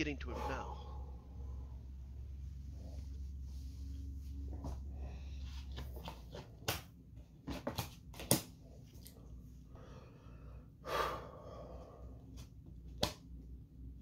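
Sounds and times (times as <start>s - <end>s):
low steady hum: 0.0s - 14.0s
playing cards clicking and tapping: 5.7s - 8.6s.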